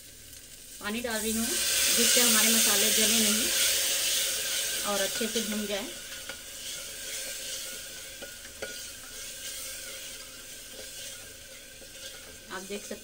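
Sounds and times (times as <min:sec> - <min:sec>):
masala sizzling in a pot: 0:00.0 - 0:13.0
spoon scraping pot: 0:02.8 - 0:13.0.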